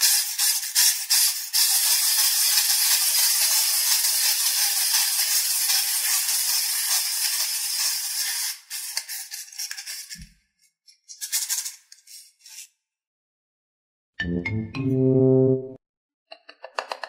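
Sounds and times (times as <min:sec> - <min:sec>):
wind-up toy clockwork buzzing: 0:00.0 - 0:09.0.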